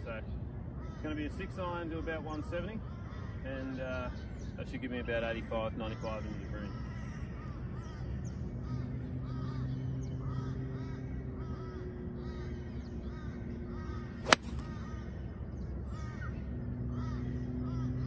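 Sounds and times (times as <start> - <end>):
birds calling: 0.0 - 18.0
low engine hum: 6.2 - 18.0
golf club striking ball: 14.2 - 14.8.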